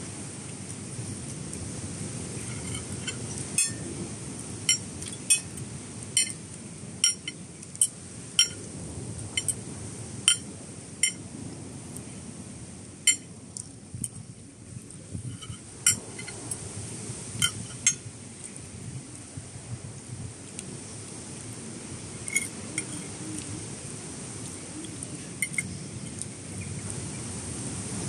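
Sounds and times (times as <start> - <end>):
low background hum: 0.0 - 28.0
cutlery clinking on plates: 2.5 - 3.8, 6.2 - 6.4, 7.0 - 8.6, 13.1 - 13.3, 15.4 - 16.4, 17.4 - 18.0, 25.4 - 25.7.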